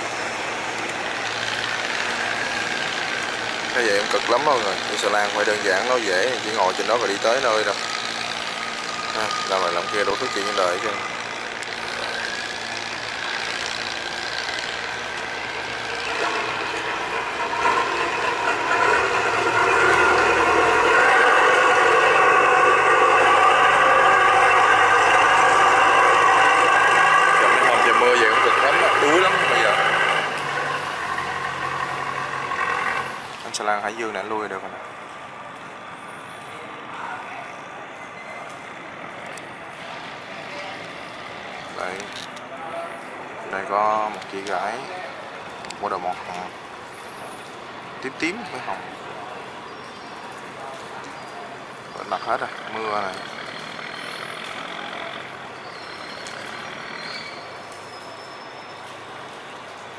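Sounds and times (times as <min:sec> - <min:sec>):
barge engine running: 0:00.0 - 0:36.9, 0:43.0 - 0:59.9.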